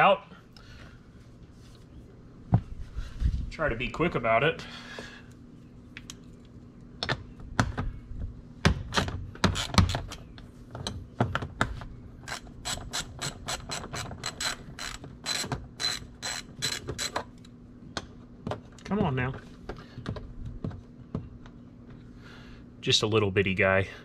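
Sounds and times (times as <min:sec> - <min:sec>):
hand ratchet clicking: 0:12.2 - 0:17.2.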